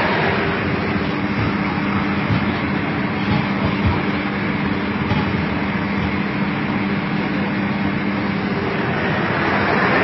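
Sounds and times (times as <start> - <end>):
bus engine running: 0.0 - 10.0
road noise: 0.0 - 10.0
rush of water: 8.4 - 10.0.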